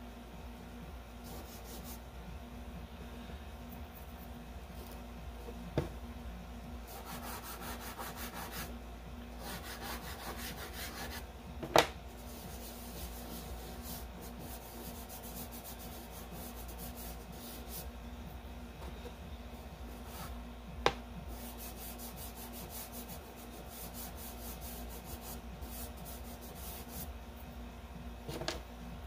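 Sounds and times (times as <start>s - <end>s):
pastel scratching on paper: 1.2s - 2.0s, 6.9s - 8.7s, 9.4s - 11.2s, 12.2s - 17.9s, 21.3s - 27.1s.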